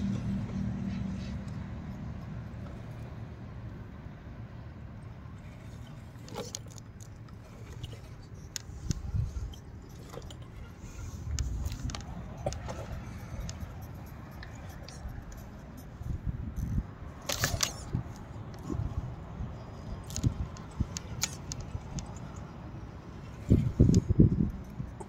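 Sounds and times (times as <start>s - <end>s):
wind rumble on microphone: 8.6s - 25.0s.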